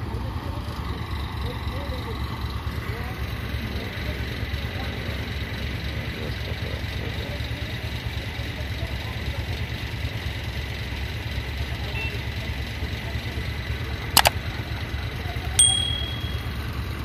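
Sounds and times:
traffic idling: 0.0 - 17.0
short bell ding: 15.6 - 16.5.

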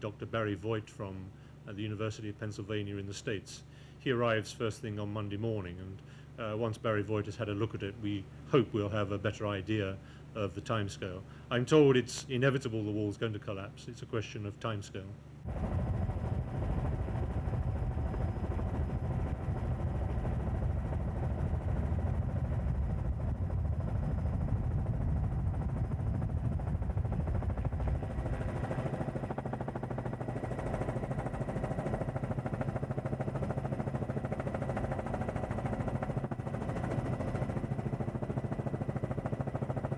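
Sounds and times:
helicopter engine and rotor: 15.4 - 39.9.

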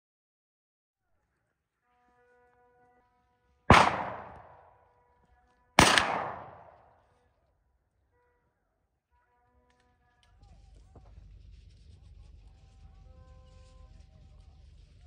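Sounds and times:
shotgun shots: 3.7 - 4.7, 5.8 - 6.9.

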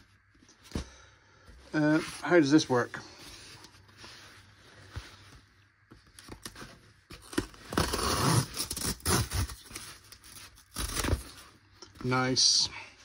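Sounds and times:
cardboard tearing: 6.3 - 11.5.

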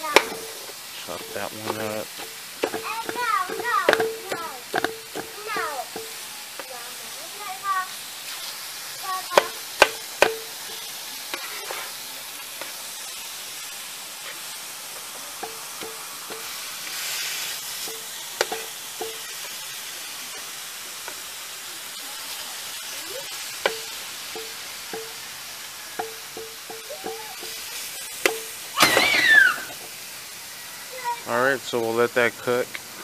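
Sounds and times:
metal spatula knocking griddle: 0.0 - 6.7, 9.3 - 11.8, 15.4 - 16.7, 17.8 - 19.6, 23.6 - 25.3, 26.0 - 29.2
chicken sizzling on a griddle: 0.0 - 33.0.

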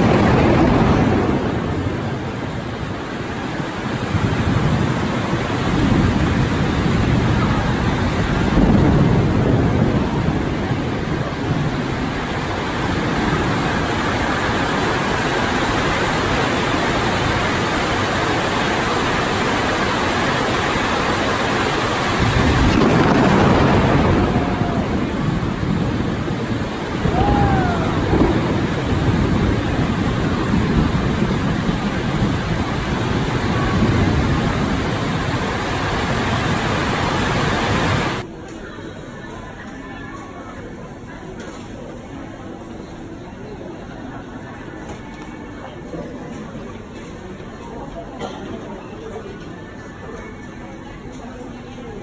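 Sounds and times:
strong wind: 0.0 - 38.3
heavy rain pouring: 0.0 - 38.4.

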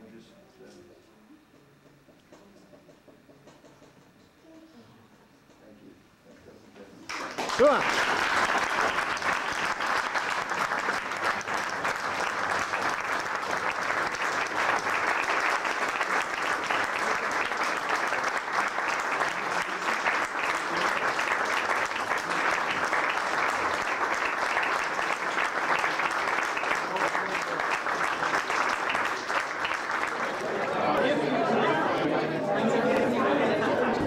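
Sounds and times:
people applauding: 7.1 - 32.0.

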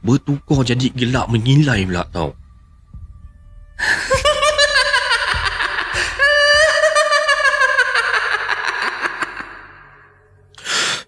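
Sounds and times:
woman's shrill cackling laugh: 4.2 - 9.6.

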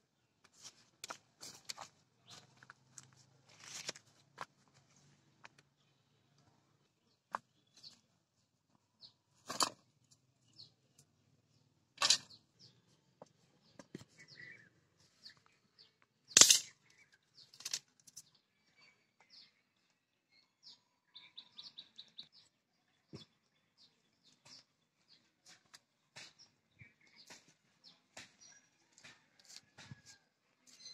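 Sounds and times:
knocks and clatters of wok and sticks: 12.0 - 12.3, 16.4 - 16.7.

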